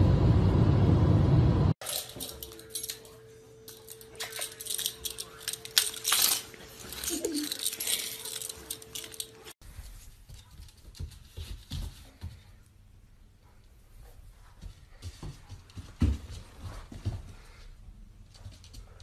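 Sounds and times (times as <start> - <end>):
puppy paws clicking and jingling: 1.8 - 9.6.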